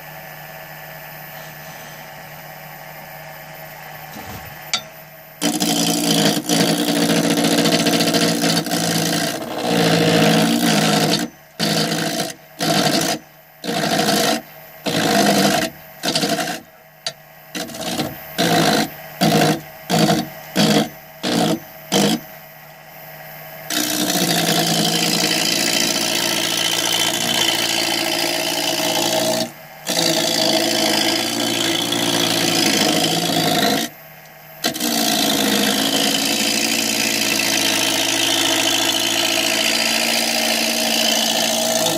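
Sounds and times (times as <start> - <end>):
wood lathe running: 5.4 - 16.7, 17.5 - 22.2, 23.7 - 33.9, 34.6 - 41.9
turning tool cutting wood: 5.4 - 22.3, 23.7 - 33.9, 34.6 - 41.9.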